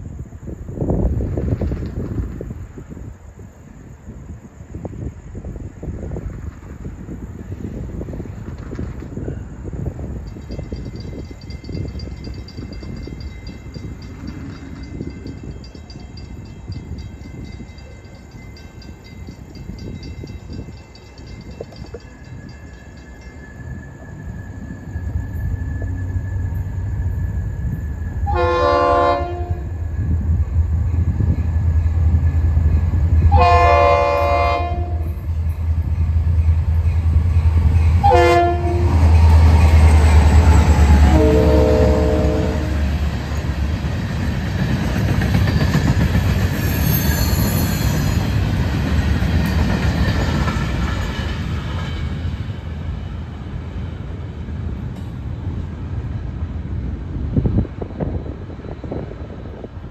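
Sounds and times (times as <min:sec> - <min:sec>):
train wheel clatter: 0:00.9 - 0:03.0, 0:05.9 - 0:28.2, 0:42.6 - 0:55.8
high wheel squeal: 0:21.4 - 0:28.2, 0:46.5 - 0:48.5
locomotive horn blasts: 0:28.3 - 0:29.8, 0:33.3 - 0:35.2, 0:38.0 - 0:39.0, 0:41.0 - 0:42.9.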